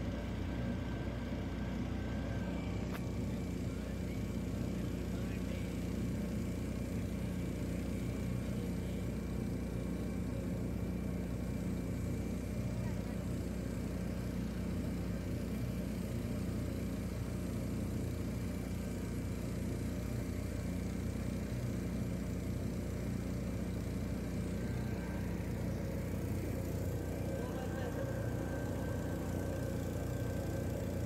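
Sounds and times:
small boat motor droning: 0.0 - 31.0.

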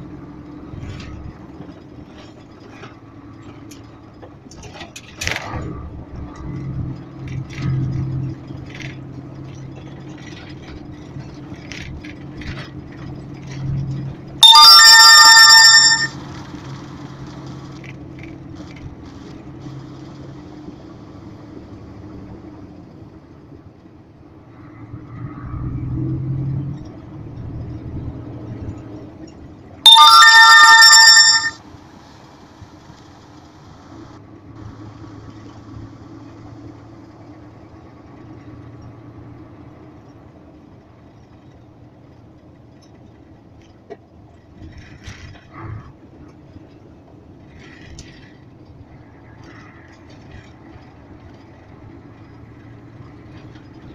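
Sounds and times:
vehicle engine and road noise: 0.0 - 53.9
electronic alert tone: 14.4 - 16.3, 29.9 - 31.6.

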